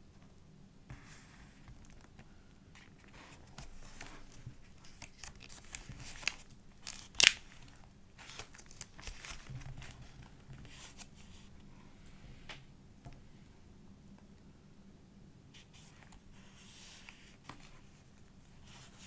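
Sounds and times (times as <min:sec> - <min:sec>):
paper pages rustling: 0:02.8 - 0:11.5
sharp paper snap: 0:06.2 - 0:07.4.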